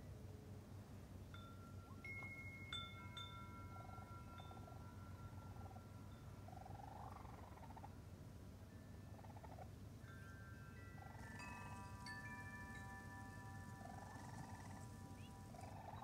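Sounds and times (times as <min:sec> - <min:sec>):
wind chime ringing: 0:01.4 - 0:06.6, 0:10.0 - 0:16.0
raccoon kits trilling chirps: 0:13.7 - 0:16.0.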